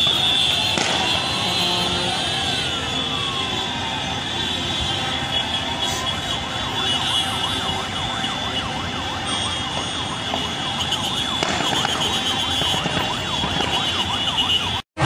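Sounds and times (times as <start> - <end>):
sirens yelping: 0.0 - 15.0.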